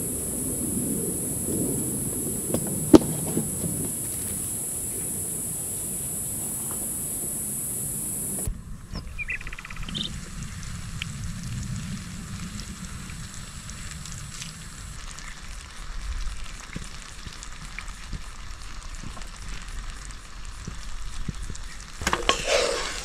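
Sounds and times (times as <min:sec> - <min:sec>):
food sizzling in a frying pan: 0:13.3 - 0:23.0.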